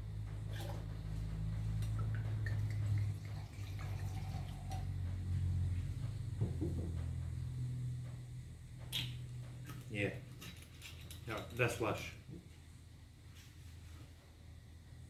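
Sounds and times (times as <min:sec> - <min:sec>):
steady low hum: 0:00.0 - 0:15.0
wine pouring into a glass: 0:02.5 - 0:04.9.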